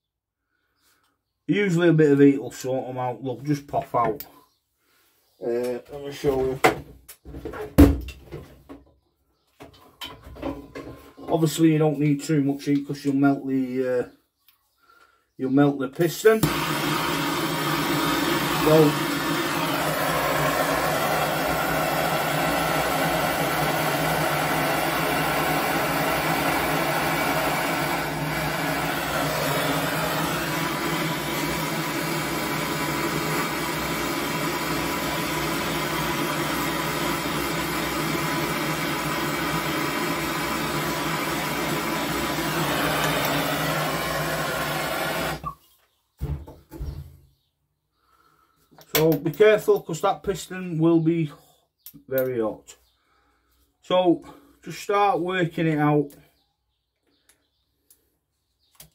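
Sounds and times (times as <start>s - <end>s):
blowtorch roaring: 16.4s - 45.5s.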